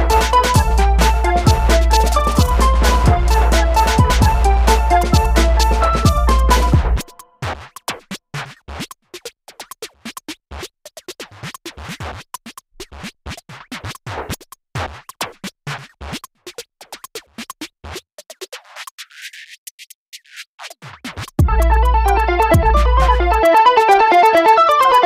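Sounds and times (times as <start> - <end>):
electronic music: 0.0 - 7.3, 21.4 - 25.0.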